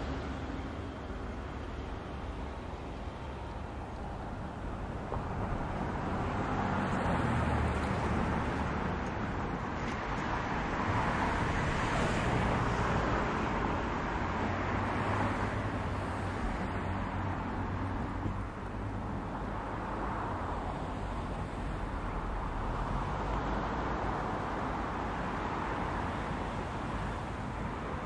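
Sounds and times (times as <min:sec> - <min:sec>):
locomotive engine drone: 0:00.0 - 0:11.6.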